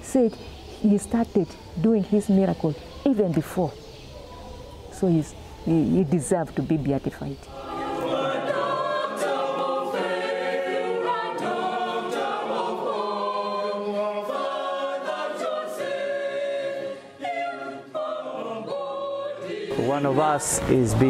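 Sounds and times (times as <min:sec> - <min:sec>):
choir singing held chords: 0:07.5 - 0:21.0.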